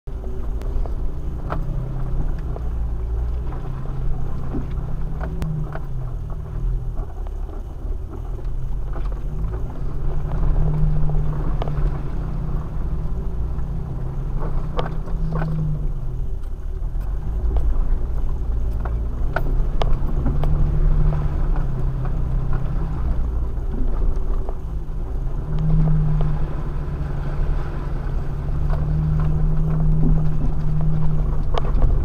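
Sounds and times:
vehicle engine droning: 0.1 - 32.0.

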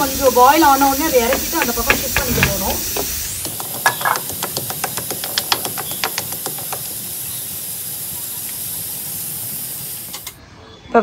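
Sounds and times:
steady hiss: 0.0 - 10.4.

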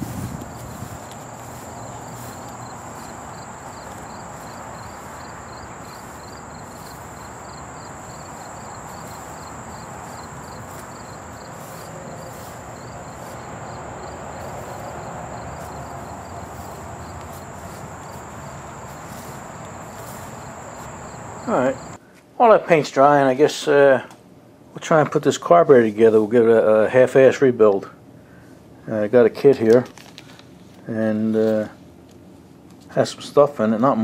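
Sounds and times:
insect chirping: 0.0 - 22.0
insects buzzing: 0.0 - 22.0
steady hiss: 0.0 - 22.0.

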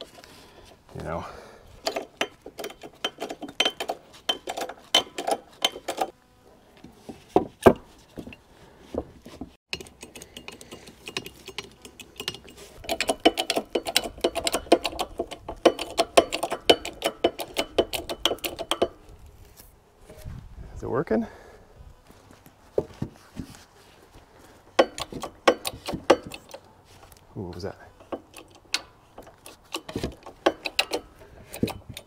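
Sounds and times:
jack handle clicking and clinking: 1.8 - 6.1, 9.7 - 19.0, 24.8 - 26.6, 28.0 - 32.0.

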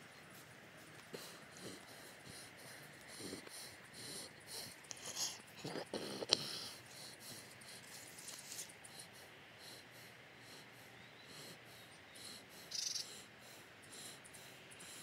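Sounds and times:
high-pitched insect chirping: 12.6 - 13.2.

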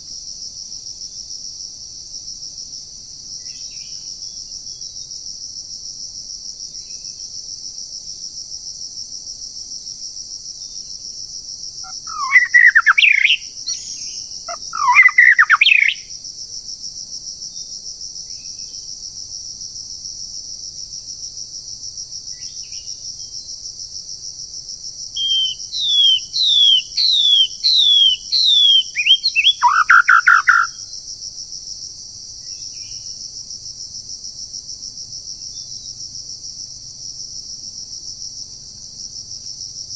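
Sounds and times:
high-pitched insect drone: 11.8 - 16.1, 25.2 - 31.0
songbird singing: 11.8 - 16.1, 25.2 - 30.8.

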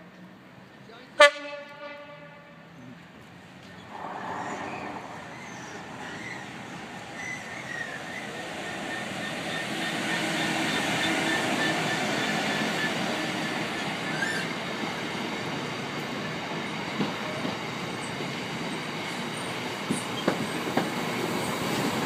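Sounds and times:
diesel locomotive engine: 0.0 - 22.0
train horn blast: 1.2 - 2.7
train wheels on rails: 3.2 - 22.0.

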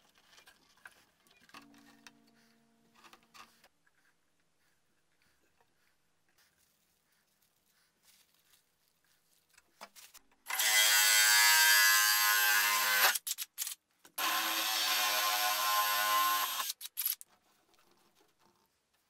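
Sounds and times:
drill cutting plastic pipe: 10.5 - 17.0.

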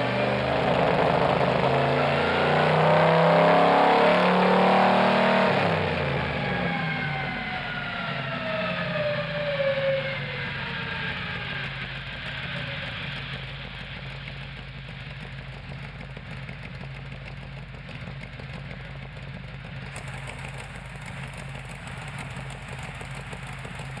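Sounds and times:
race car engine idling: 10.2 - 24.0.

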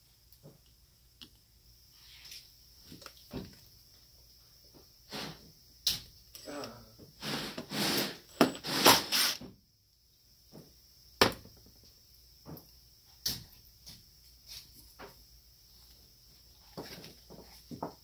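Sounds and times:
tool set down on bench: 8.4 - 9.0, 10.5 - 11.7.

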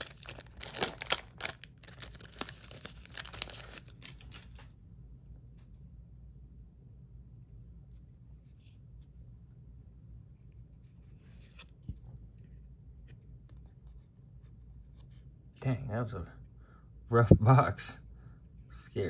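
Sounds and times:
trading cards rustling: 0.0 - 4.7
low steady hum: 0.0 - 19.0.

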